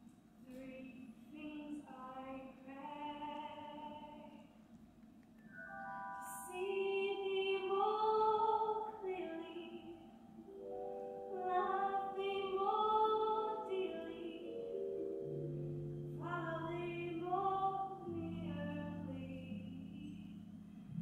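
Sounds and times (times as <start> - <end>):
woman singing: 0.5 - 4.5, 6.2 - 10.1, 11.3 - 14.5, 16.2 - 20.4
soft musical accompaniment: 5.4 - 21.0.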